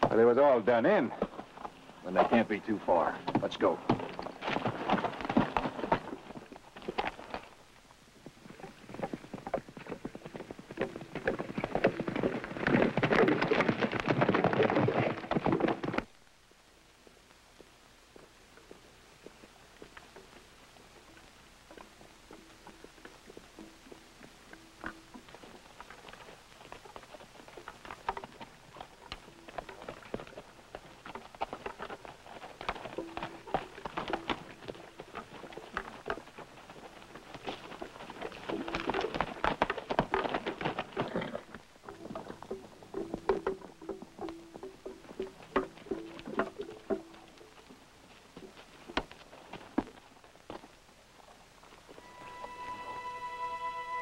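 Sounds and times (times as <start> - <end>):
horses galloping on rocky ground: 0.0 - 52.6.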